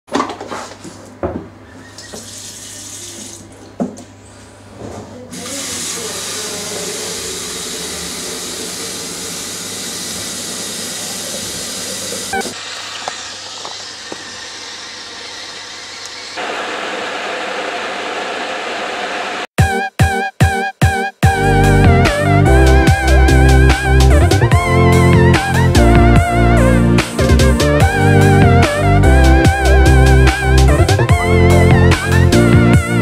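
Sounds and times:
tap water filling kettle: 5.4 - 16.4.

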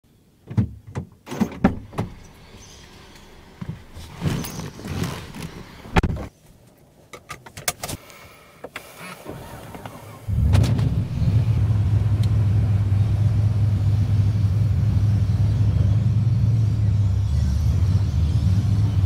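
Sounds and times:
car door shutting: 0.5 - 6.3, 8.6 - 11.4
clothes and seat rustling: 1.3 - 10.3.

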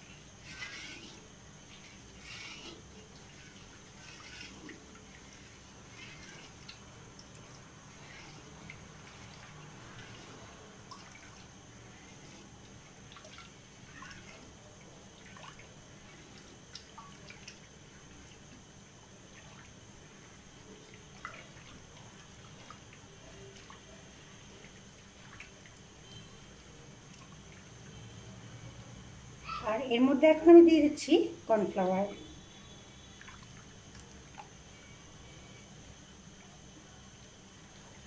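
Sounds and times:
liquid sloshing in pan: 0.0 - 27.9
faint low hum: 0.0 - 38.0.

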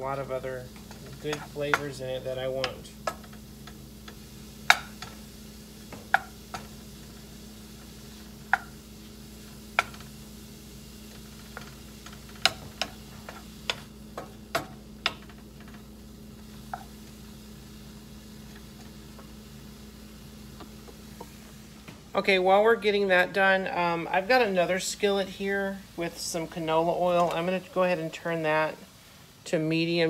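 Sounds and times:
mushrooms sizzling: 0.0 - 30.0
wooden spoon knocking skillet: 2.6 - 5.2, 5.9 - 6.8, 8.4 - 8.8, 9.7 - 10.1, 11.2 - 15.8.

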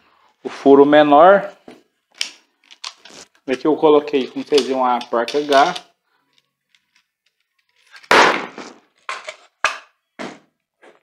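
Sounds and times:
wooden blocks clattering: 4.2 - 5.9, 6.6 - 10.0.

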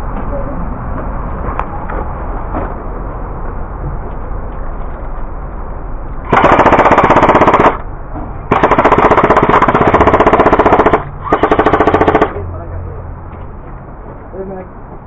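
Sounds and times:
airsoft gun firing full-auto bursts: 6.3 - 7.8, 8.5 - 12.4.

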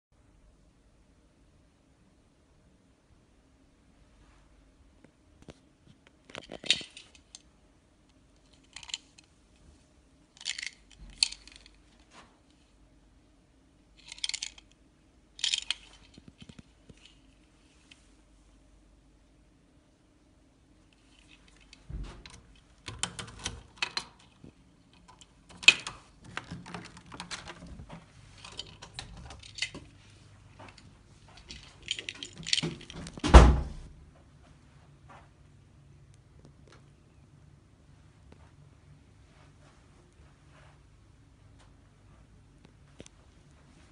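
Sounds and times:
key card clicks and clatters: 21.1 - 30.0, 30.7 - 33.2
heavy door thump: 21.9 - 22.3, 33.2 - 33.9.

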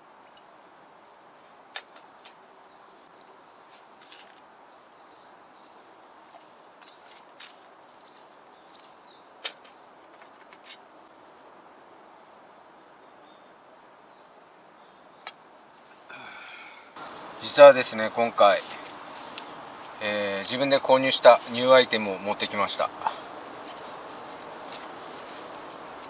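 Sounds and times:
faint bird chirps: 23.0 - 24.6.

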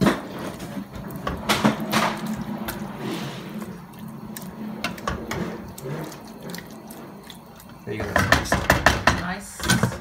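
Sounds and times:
water pouring: 0.0 - 8.8
cup knocking: 8.0 - 9.2.

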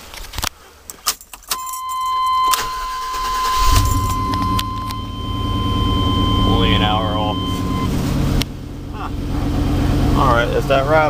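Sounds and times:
keys jingling in ignition: 1.0 - 5.1
high warning tone: 1.5 - 8.4
truck engine starting and idling: 1.5 - 11.0.

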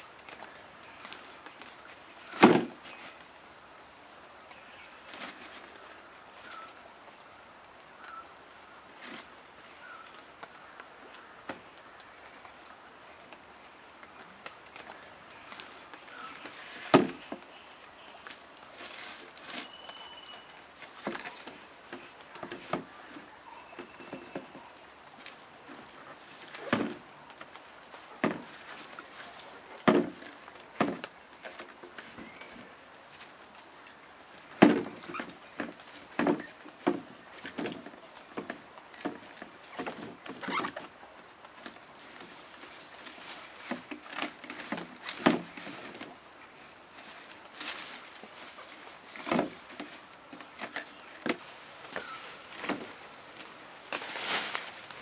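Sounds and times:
rope and handling rustle: 0.0 - 55.0
bamboo poles knocking hollowly: 0.1 - 3.2, 14.0 - 17.6, 20.8 - 32.7, 34.3 - 46.2, 47.0 - 53.0
bamboo knocking: 15.5 - 17.5, 28.2 - 28.6, 29.8 - 32.4, 34.6 - 40.9.

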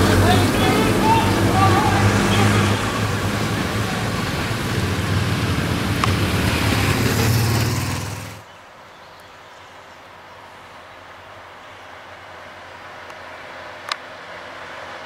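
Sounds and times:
van engine running: 0.0 - 8.4.

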